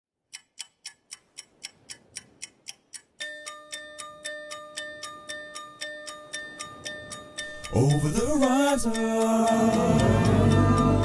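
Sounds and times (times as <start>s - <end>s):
clock-like ticking: 0.2s - 11.0s
held musical notes: 3.2s - 11.0s.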